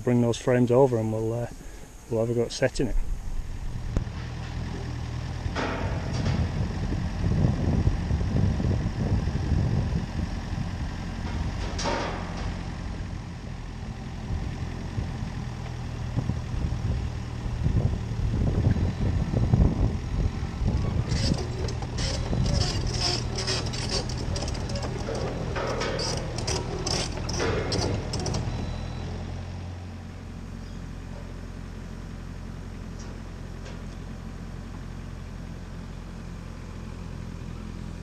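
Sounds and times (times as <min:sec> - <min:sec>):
engine idling: 0:02.8 - 0:38.0
rapid metallic clatter: 0:20.6 - 0:28.9.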